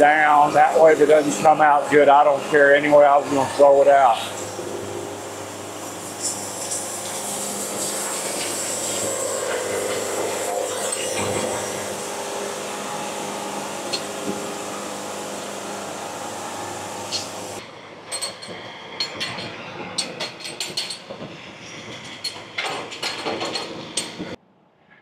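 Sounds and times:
band sawmill cutting board: 0:06.2 - 0:17.6
sharp knocks and clatters: 0:18.2 - 0:24.4.

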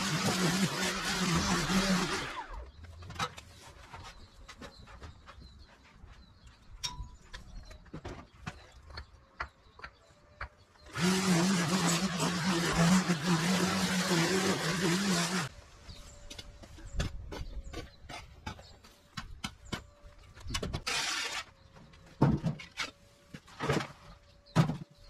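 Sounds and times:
string trimmer cutting grass: 0:00.0 - 0:02.6, 0:10.9 - 0:15.5, 0:20.8 - 0:21.5.

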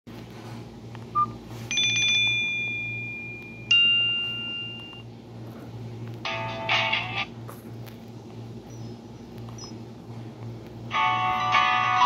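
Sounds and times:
phone beep: 0:01.2 - 0:02.4
bell-like phone chimes: 0:01.7 - 0:05.0.

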